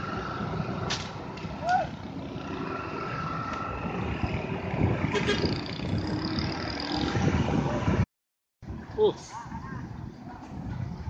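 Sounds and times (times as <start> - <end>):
motorcycles: 0.0 - 8.1
traffic engines passing: 0.0 - 11.0.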